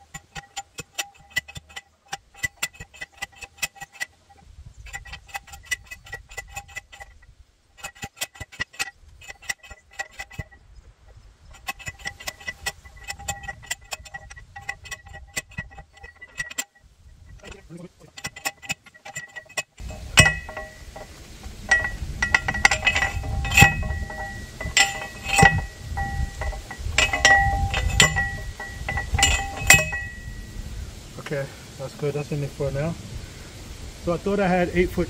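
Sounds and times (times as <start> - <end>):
post driver clanking on metal: 0.0 - 30.5.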